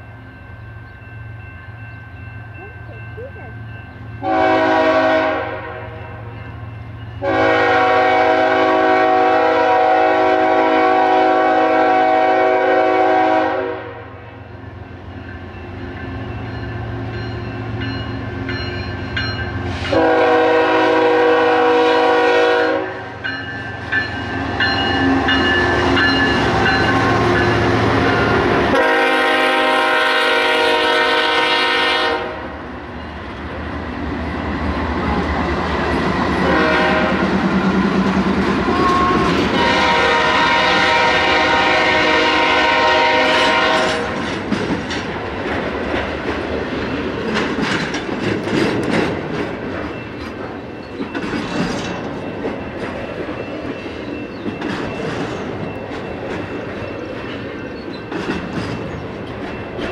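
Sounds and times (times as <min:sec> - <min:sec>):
train rumble and rail clatter: 0:00.0 - 0:59.9
locomotive air horn blasts: 0:04.2 - 0:06.2, 0:07.2 - 0:14.2, 0:19.9 - 0:23.2, 0:28.7 - 0:32.5, 0:36.4 - 0:37.2, 0:38.7 - 0:44.2.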